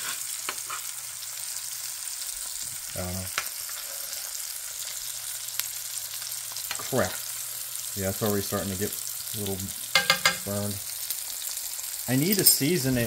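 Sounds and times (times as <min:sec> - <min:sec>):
steak sizzling in a pan: 0:00.0 - 0:13.0
metal spoon clicking on pan: 0:09.9 - 0:10.5.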